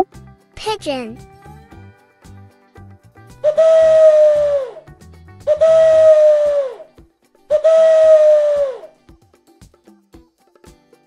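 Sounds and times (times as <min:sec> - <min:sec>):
soft background music: 0:00.0 - 0:11.0
pigeon cooing: 0:03.5 - 0:04.9, 0:05.5 - 0:06.9, 0:07.5 - 0:08.9.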